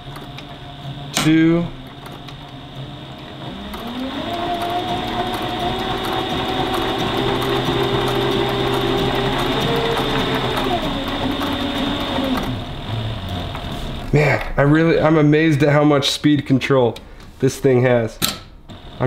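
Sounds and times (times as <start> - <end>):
sewing machine stitching leather: 0.0 - 14.1, 18.7 - 19.0.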